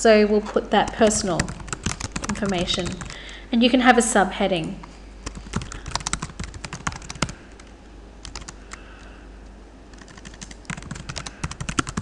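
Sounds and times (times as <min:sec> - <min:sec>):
computer keyboard typing: 0:00.8 - 0:03.4, 0:05.2 - 0:08.8, 0:09.9 - 0:12.0.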